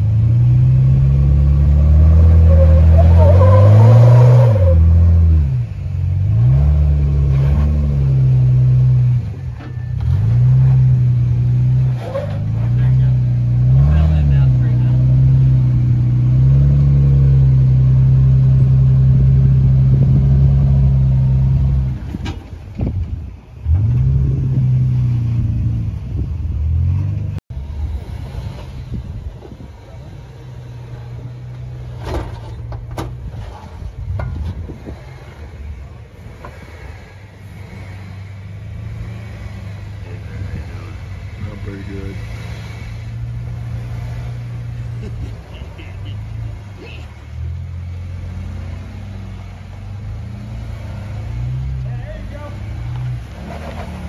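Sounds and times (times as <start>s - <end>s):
engine working hard under load: 0.0s - 54.0s
vehicle crawling over rock: 49.5s - 54.0s.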